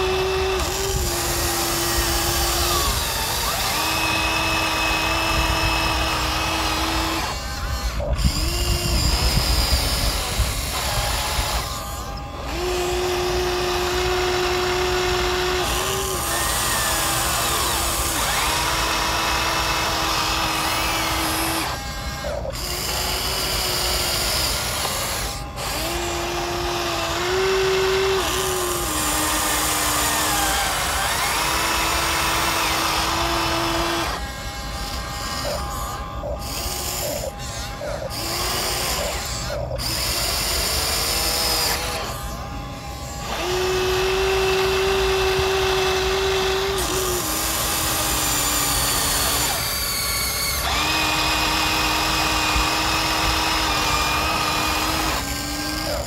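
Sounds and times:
toy excavator motors whining: 0.0s - 56.0s.

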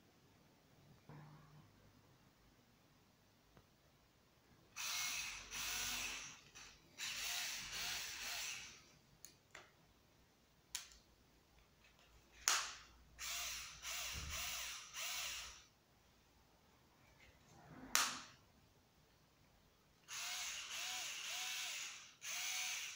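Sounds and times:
cordless screwdriver running: 4.8s - 8.8s, 13.2s - 15.6s, 20.1s - 22.9s.

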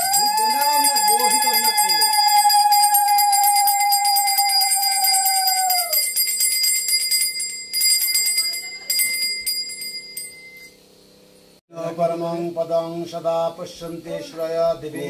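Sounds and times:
hand bell ringing rapidly: 0.0s - 10.7s.

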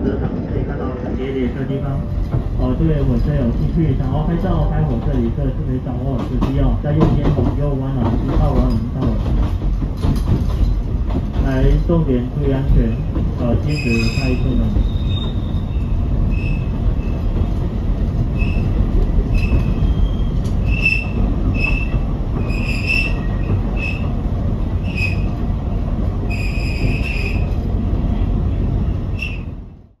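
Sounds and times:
train rumble inside carriage: 0.0s - 30.0s
high wheel squeals: 13.7s - 17.2s, 26.3s - 27.4s, 29.1s - 29.5s.

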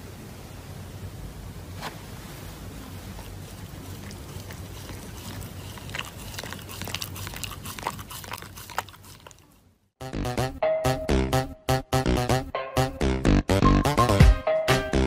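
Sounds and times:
steady hiss: 0.0s - 4.3s
dog chewing paper: 3.0s - 9.6s.

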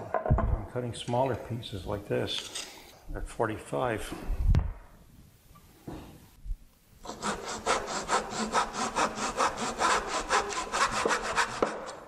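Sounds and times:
hand saw rasping through wood: 7.0s - 12.0s.

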